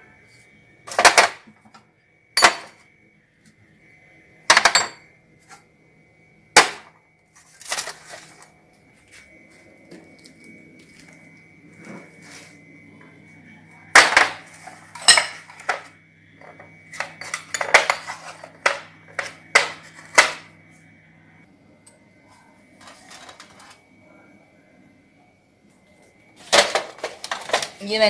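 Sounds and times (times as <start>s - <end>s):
steady low hum: 0.0s - 28.0s
cups and crockery clinking: 2.4s - 2.8s, 4.5s - 5.1s, 13.9s - 20.5s.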